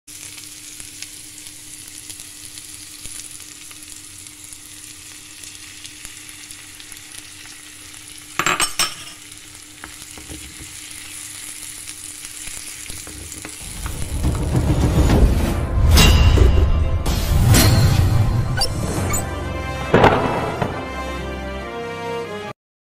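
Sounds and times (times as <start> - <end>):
egg sizzling in hot pan: 0.1 - 14.5
vegetables sizzling in oil: 0.1 - 14.5.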